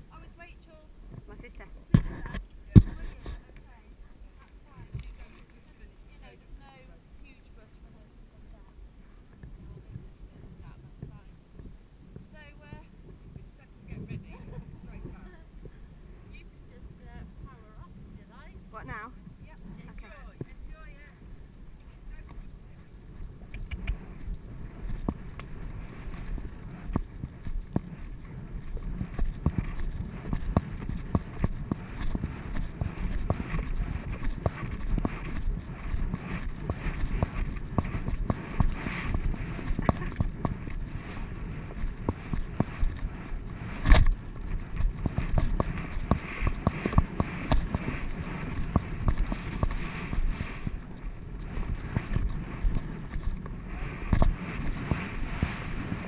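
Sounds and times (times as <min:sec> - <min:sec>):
wind buffeting: 0:09.4 - 0:56.0
horse hoofbeats on dirt: 0:23.3 - 0:56.0.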